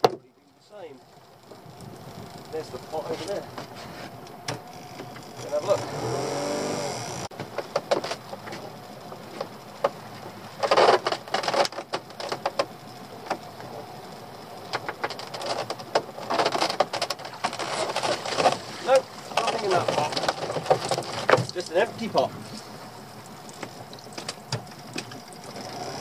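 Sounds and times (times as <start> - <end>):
rustling and water: 0.0 - 26.0
rope knocks and clicks: 10.6 - 13.4, 14.7 - 18.7, 19.3 - 21.6.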